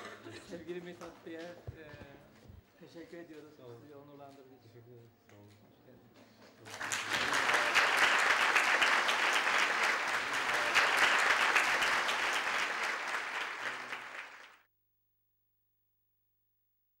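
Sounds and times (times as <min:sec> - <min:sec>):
audience applauding: 0:06.6 - 0:14.6.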